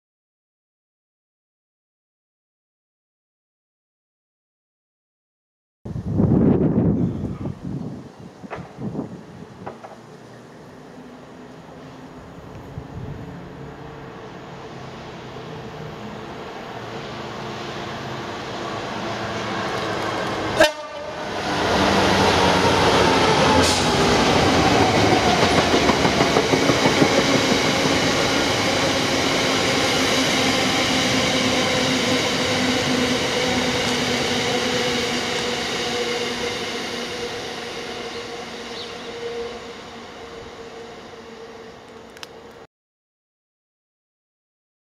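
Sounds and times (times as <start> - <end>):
diesel locomotive engine: 6.6 - 42.6
locomotive horn: 20.5 - 21.4.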